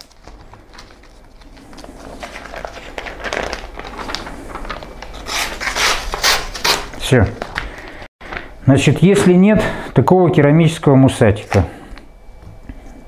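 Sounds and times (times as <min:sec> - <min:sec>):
paper rustling and scraping: 0:00.0 - 0:08.0.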